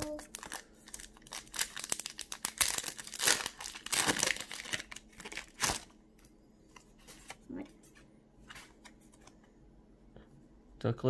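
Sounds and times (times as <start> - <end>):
foil wrapper crinkling and tearing: 0.1 - 5.9.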